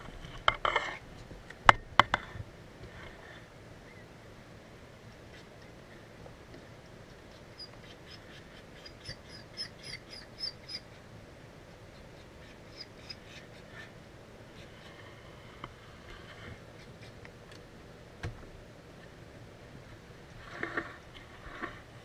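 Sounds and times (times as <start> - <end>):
animal chirping: 7.6 - 10.9, 12.0 - 13.6.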